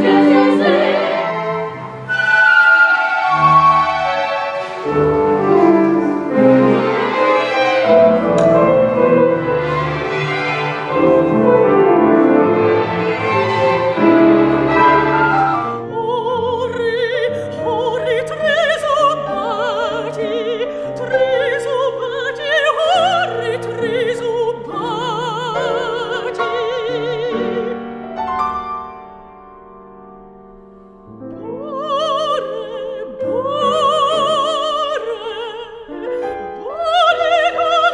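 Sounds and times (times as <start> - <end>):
woman singing opera: 0.0 - 4.1, 14.7 - 27.9, 31.4 - 37.9
small orchestra with strings: 0.0 - 29.5.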